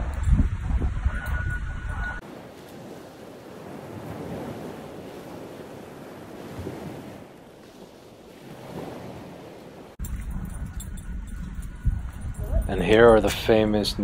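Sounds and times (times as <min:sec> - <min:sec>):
ocean waves washing: 0:00.0 - 0:14.0
wind: 0:00.0 - 0:14.0.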